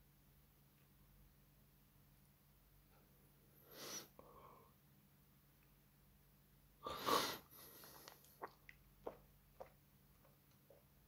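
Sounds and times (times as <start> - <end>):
person breathing close to microphone: 3.6 - 4.7, 6.8 - 8.3.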